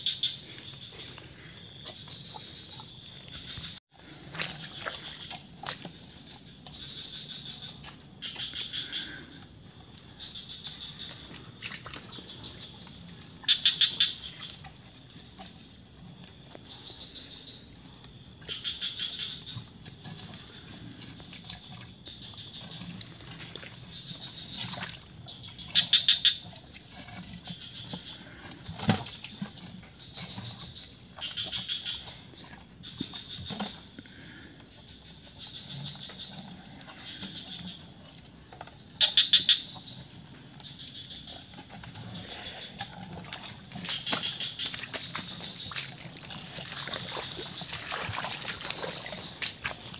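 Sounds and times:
high insect drone: 0.0 - 49.9
cattle slurping water: 0.6 - 8.4, 9.1 - 17.2, 19.4 - 34.3, 39.8 - 49.9.

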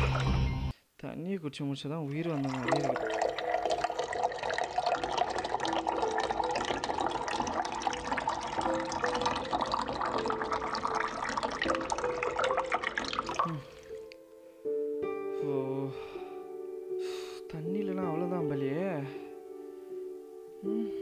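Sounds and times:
water gushing from a tap: 2.1 - 14.0.

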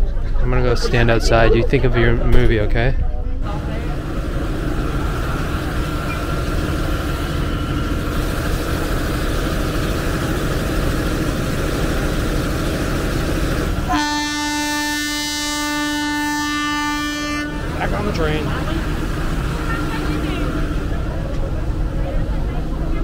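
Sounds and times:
low rumble: 0.0 - 8.4
outdoor station noise: 0.0 - 23.0
train air horn blast: 13.8 - 17.9.

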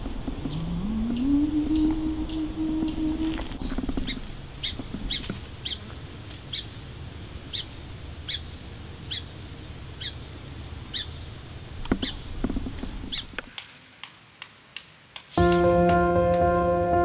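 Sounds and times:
low steady rumble: 0.0 - 4.5
bird chirping: 0.0 - 5.8.

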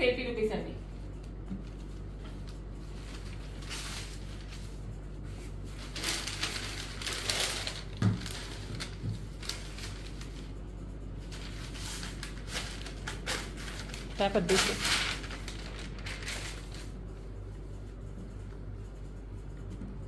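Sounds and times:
low steady hum: 0.0 - 20.0
rustling cloth and paper: 1.0 - 10.6, 11.2 - 17.4.

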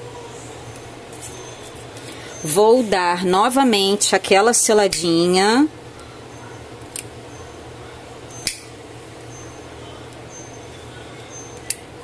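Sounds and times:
low room hum: 0.0 - 12.0
lighter clicks: 8.4 - 8.7.

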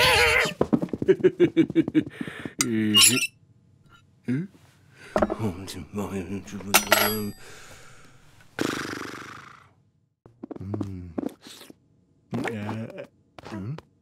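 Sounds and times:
cutlery clink: 6.6 - 7.4.

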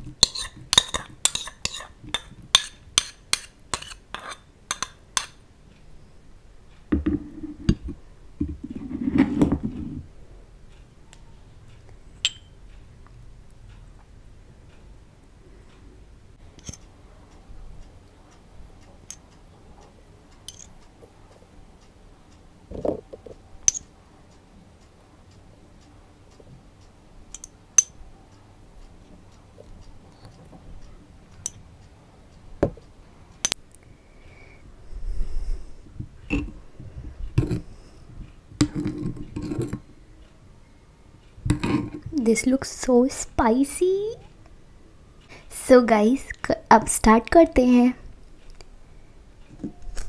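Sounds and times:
metal spoon clinking on ceramic: 0.2 - 5.4, 12.2 - 12.6, 20.5 - 20.7, 27.4 - 28.0.

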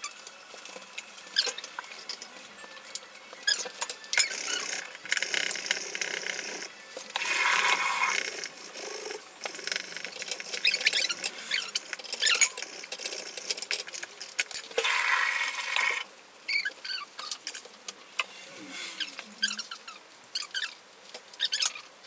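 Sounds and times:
hissing rush: 18.0 - 19.7.

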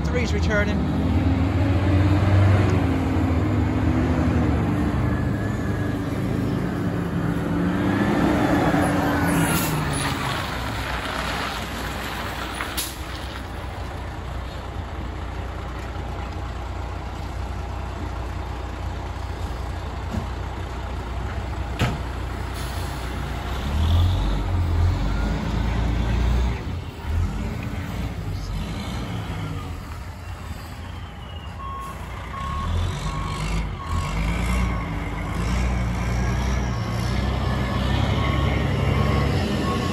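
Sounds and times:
diesel truck engine: 0.0 - 39.9
reversing beeper: 3.4 - 10.1, 23.8 - 27.2, 28.4 - 39.9
air brakes hissing: 22.5 - 23.2.

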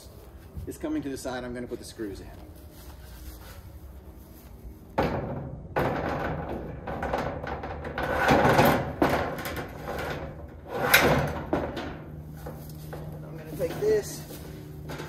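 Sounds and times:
metal fence panel scraping: 5.0 - 15.0.

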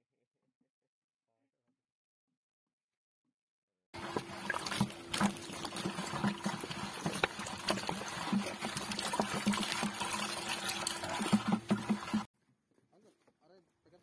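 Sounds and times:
water pouring into a bucket: 4.0 - 12.3.

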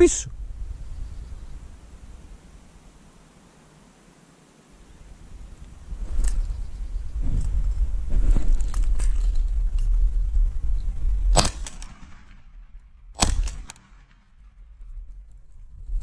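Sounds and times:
rustling through brush: 1.6 - 12.3
shotgun shots with echo: 11.3 - 12.6, 13.2 - 14.3.

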